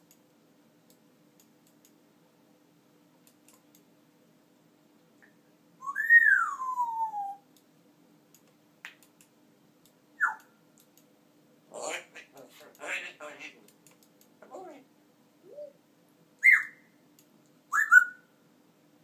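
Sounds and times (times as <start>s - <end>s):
faint clicks and ticks: 0.0s - 2.0s, 3.2s - 3.9s, 8.3s - 11.1s, 13.6s - 14.4s
parrot whistling: 5.8s - 7.4s, 10.2s - 10.4s, 16.4s - 16.9s, 17.7s - 18.3s.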